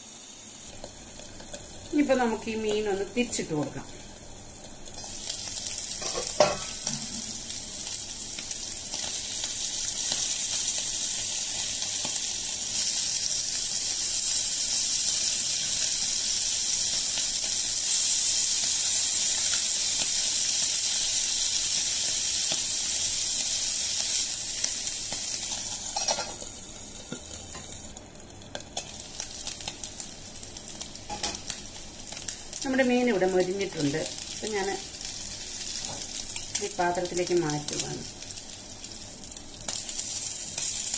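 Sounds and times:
fish sizzling in oil: 0.0s - 40.9s.

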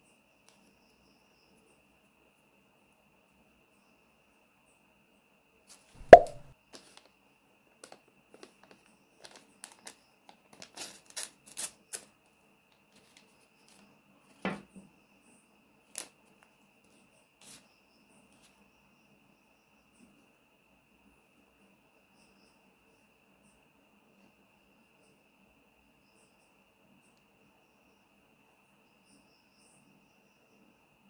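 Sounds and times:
sharp knock: 6.0s - 6.5s.

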